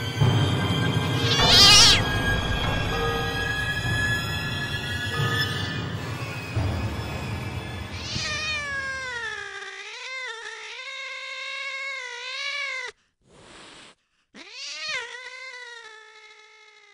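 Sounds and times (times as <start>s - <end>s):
cat yowling: 1.2s - 2.2s, 7.9s - 13.0s, 14.4s - 16.9s.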